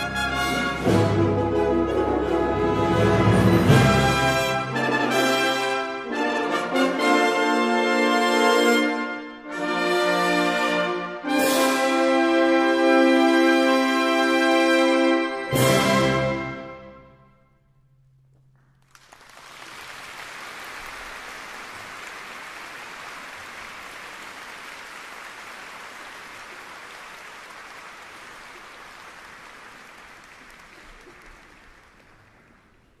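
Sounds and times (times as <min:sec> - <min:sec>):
audience applauding: 0:18.5 - 0:33.0.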